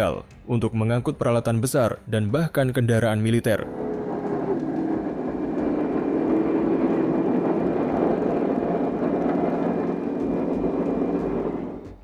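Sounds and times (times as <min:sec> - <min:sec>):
engines droning: 0:03.6 - 0:12.0.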